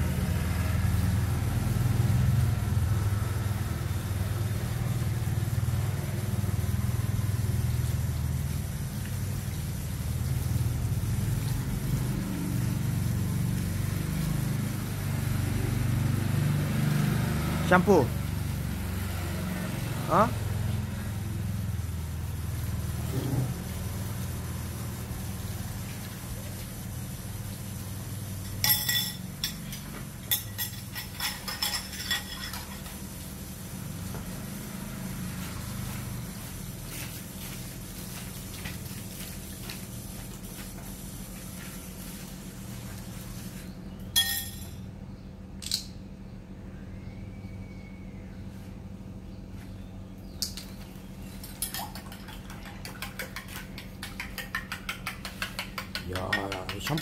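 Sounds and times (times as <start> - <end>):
spoon clinking against a bowl: 28.4 - 32.9, 44.2 - 44.8, 51.6 - 57.0
spoon clinking against bowl: 28.5 - 32.9, 44.2 - 44.8.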